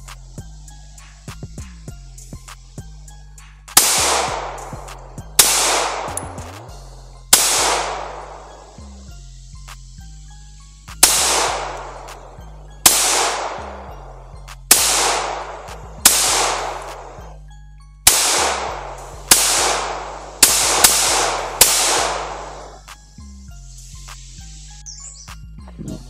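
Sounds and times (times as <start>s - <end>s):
background music with bass: 0.0s - 26.0s
pistol shots with echo: 3.8s - 8.8s, 11.0s - 17.4s, 18.0s - 22.9s.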